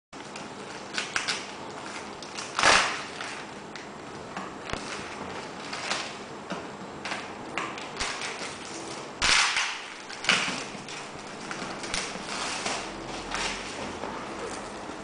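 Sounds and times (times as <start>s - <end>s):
paper and plastic wrap ripping: 0.2s - 3.6s, 4.7s - 6.2s, 7.8s - 14.6s.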